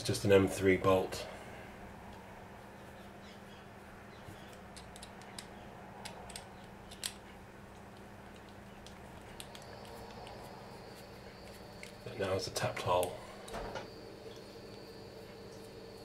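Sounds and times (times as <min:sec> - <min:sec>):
steady low hum: 0:00.0 - 0:16.0
screwdriver clicks turning bolt: 0:04.5 - 0:07.2.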